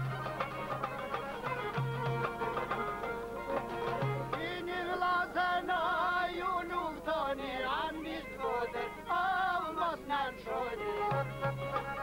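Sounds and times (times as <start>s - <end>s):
man singing folk song: 4.3s - 11.7s.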